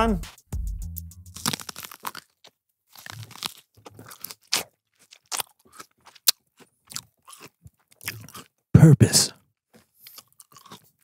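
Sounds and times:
crunchy chewing of corn: 1.3 - 8.7, 9.6 - 11.0.

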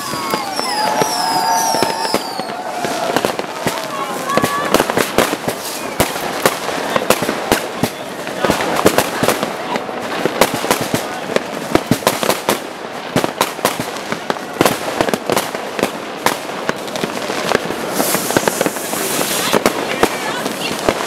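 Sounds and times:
fireworks and firecrackers banging: 0.0 - 21.0
hiss: 17.8 - 19.6.

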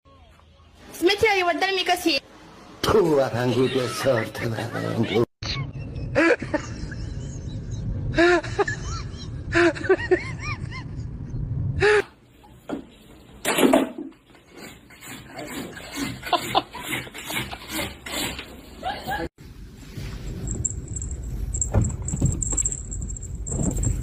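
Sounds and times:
people laughing: 3.7 - 11.0, 16.0 - 17.8
rustling and knocking: 20.5 - 24.0.

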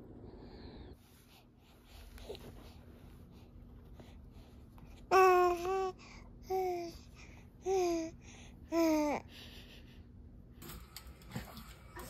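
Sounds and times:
baby cooing: 5.1 - 7.0.

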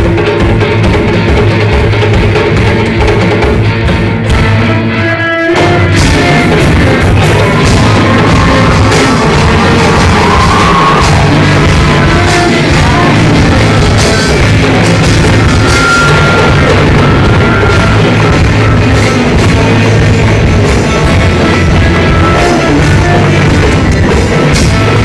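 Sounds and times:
bass guitar: 0.0 - 25.0
electric guitar: 0.0 - 25.0
rock band playing loudly: 0.0 - 25.0
hand drum: 5.6 - 25.0.

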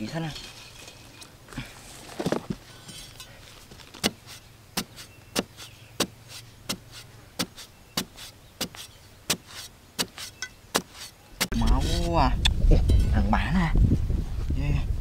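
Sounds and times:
digging bar striking earth: 2.1 - 13.2.

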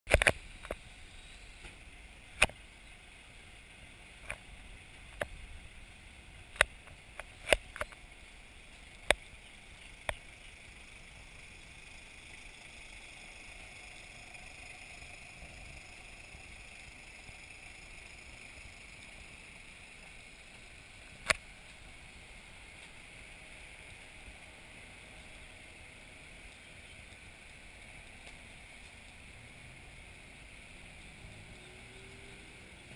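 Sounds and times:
sharp clicks: 0.1 - 0.8, 6.5 - 8.0, 9.0 - 10.3, 21.2 - 21.4
faint steady hiss: 0.1 - 32.9.

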